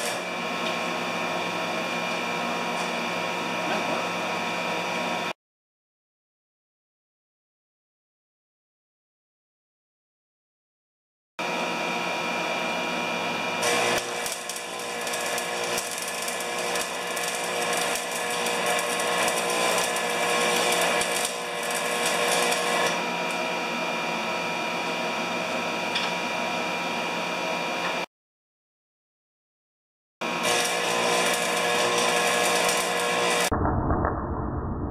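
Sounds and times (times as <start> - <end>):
welding arc crackling: 13.6 - 23.0, 30.3 - 34.4.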